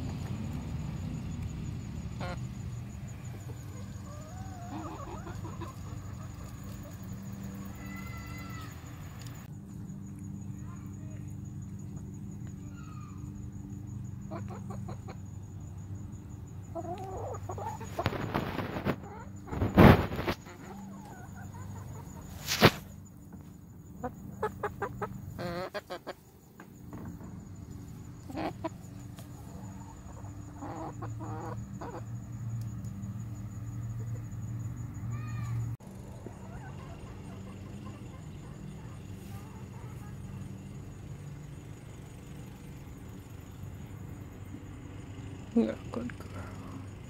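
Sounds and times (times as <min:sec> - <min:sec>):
hens clucking: 0:02.2 - 0:07.7, 0:14.2 - 0:15.4, 0:16.7 - 0:32.2, 0:36.1 - 0:40.4.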